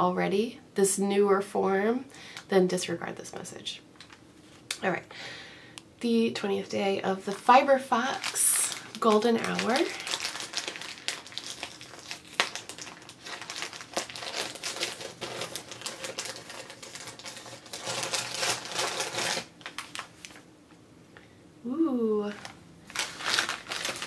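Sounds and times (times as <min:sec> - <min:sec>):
gift wrapping crackling: 0:07.2 - 0:20.4, 0:22.2 - 0:24.0.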